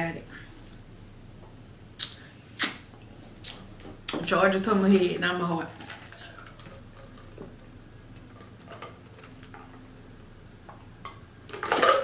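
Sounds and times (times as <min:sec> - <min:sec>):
chewing mouth clicks and smacks: 0:02.0 - 0:02.8, 0:03.4 - 0:03.6.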